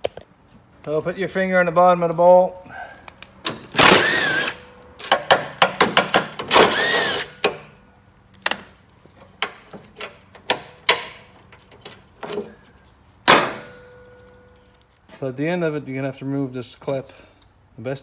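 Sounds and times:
cordless drill running: 0:03.8 - 0:04.6, 0:06.5 - 0:07.4.

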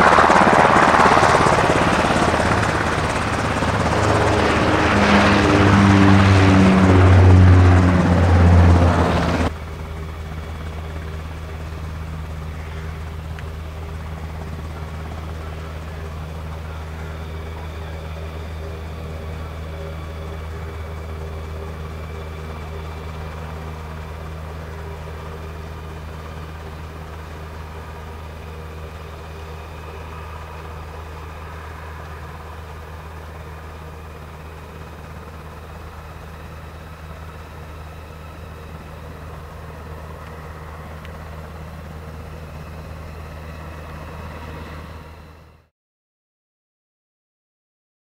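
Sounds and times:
helicopter rotor thrum: 0:00.0 - 0:45.3
turbine engine whine: 0:00.0 - 0:45.7.

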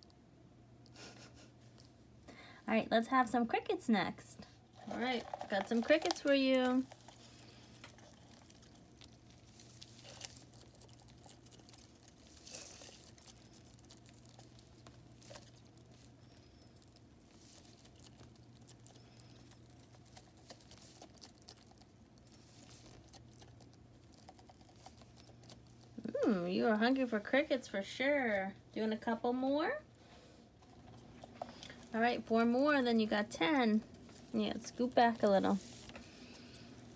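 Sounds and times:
faint clicks and scratches: 0:04.7 - 0:26.1.

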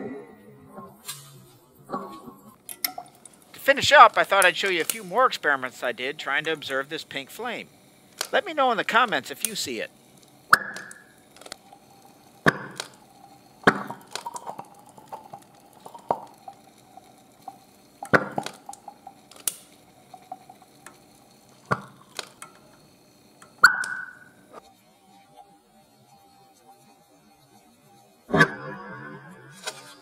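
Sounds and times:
faint steady hum: 0:00.0 - 0:28.1
hydrogen bubbles popping in flame: 0:02.8 - 0:24.5.

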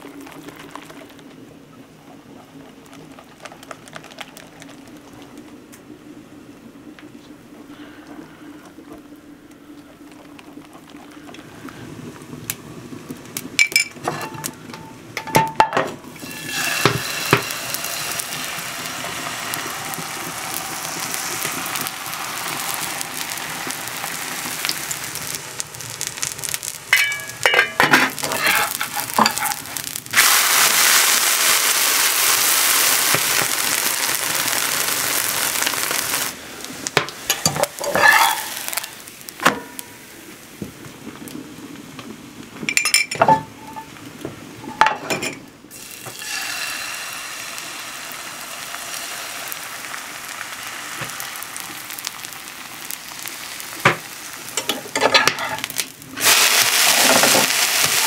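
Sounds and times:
batter pouring into pan: 0:02.8 - 0:05.3, 0:16.2 - 0:36.4, 0:37.3 - 0:39.4, 0:45.7 - 0:58.0
batter sizzling in a pan: 0:10.0 - 0:58.0.

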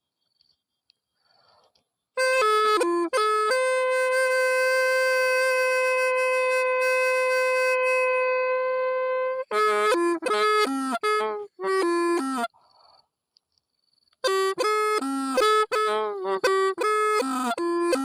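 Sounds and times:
solo wind instrument melody: 0:02.2 - 0:12.5, 0:14.2 - 0:18.0.

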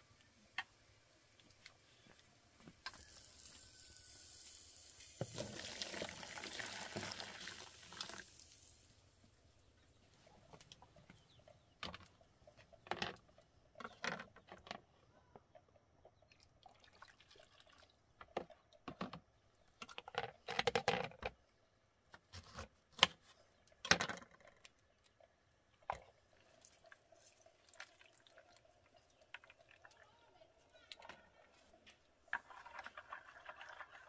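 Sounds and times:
water splashing and pouring: 0:04.3 - 0:08.9, 0:16.6 - 0:18.0, 0:26.2 - 0:30.0, 0:32.3 - 0:34.0
plastic bowls clattering: 0:12.7 - 0:14.9, 0:18.2 - 0:21.4.

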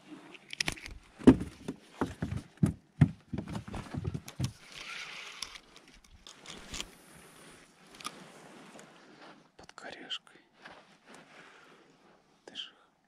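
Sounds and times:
sleeve rustling: 0:10.6 - 0:12.4.

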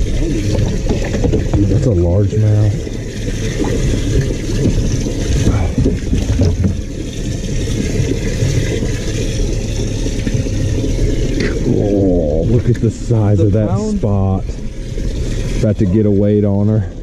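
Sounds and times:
water churning and splashing: 0:00.0 - 0:17.0.

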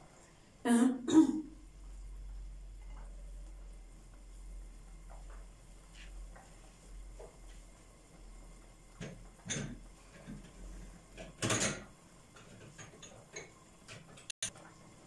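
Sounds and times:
kitchen items knocking and clicking: 0:08.9 - 0:14.3.

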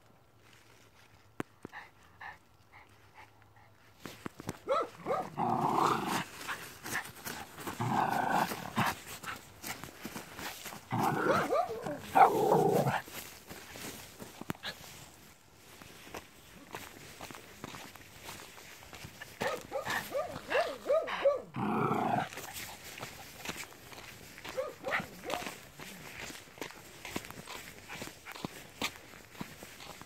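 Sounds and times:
dog growling and snarling: 0:05.0 - 0:09.4, 0:10.4 - 0:13.1, 0:19.8 - 0:22.6.

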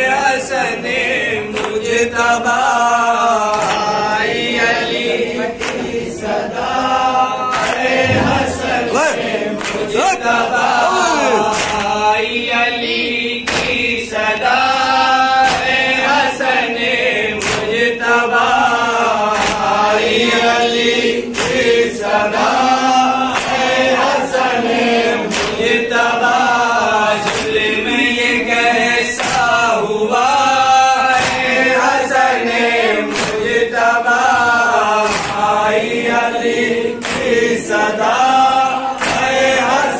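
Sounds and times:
men chanting through a microphone: 0:00.0 - 0:39.9
palms slapping on chests: 0:07.5 - 0:10.0, 0:11.4 - 0:12.0, 0:13.5 - 0:14.0, 0:17.4 - 0:17.9, 0:21.3 - 0:21.8, 0:33.1 - 0:33.6, 0:35.0 - 0:35.7, 0:37.0 - 0:37.6, 0:39.0 - 0:39.5.

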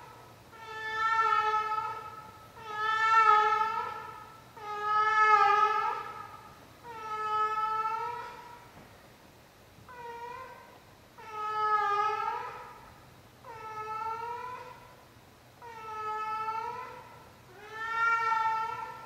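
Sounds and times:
cat yowling: 0:17.6 - 0:18.8.

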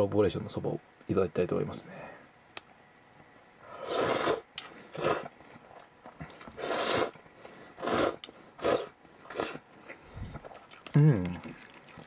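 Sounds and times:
person slurping noodles: 0:03.8 - 0:05.3, 0:06.3 - 0:07.2, 0:07.8 - 0:12.0.

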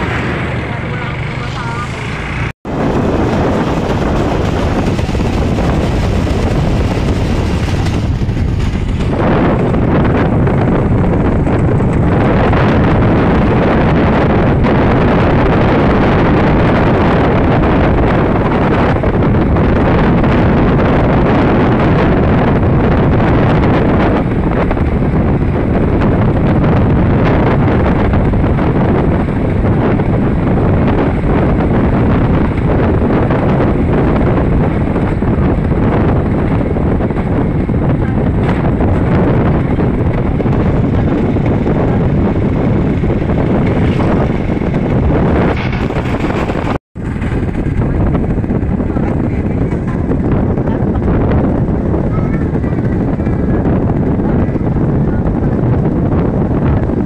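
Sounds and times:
motorcycle engine running: 0:00.0 - 0:57.0
wind buffeting microphone: 0:00.0 - 0:57.0.

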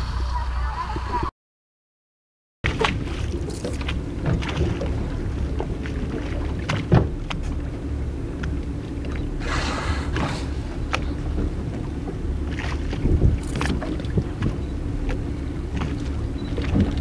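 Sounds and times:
boat engine hum: 0:00.0 - 0:01.3, 0:02.6 - 0:17.0
water splashing: 0:02.6 - 0:17.0
wind noise: 0:09.4 - 0:17.0.

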